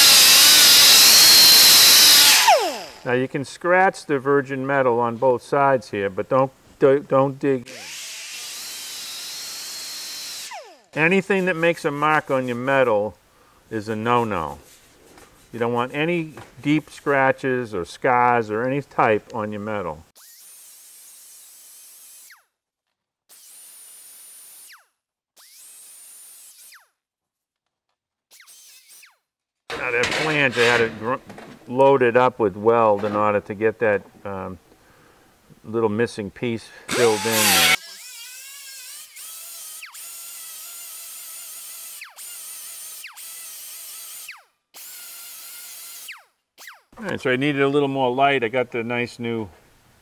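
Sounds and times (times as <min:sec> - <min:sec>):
air die grinder whining: 0:00.0 - 0:03.1, 0:36.9 - 0:40.0
die grinder whining: 0:00.0 - 0:03.1, 0:07.7 - 0:11.0, 0:36.9 - 0:45.2.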